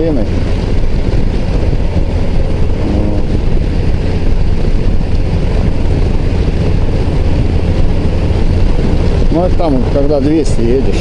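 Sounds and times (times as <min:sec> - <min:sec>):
motorcycle engine drone: 0:00.0 - 0:11.0
wind rush over helmet: 0:00.0 - 0:11.0.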